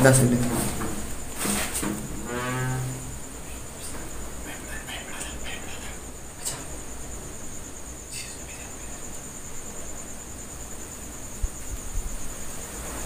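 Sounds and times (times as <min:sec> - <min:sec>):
low thumps: 0:00.0 - 0:04.4
crickets chirping: 0:00.0 - 0:13.0.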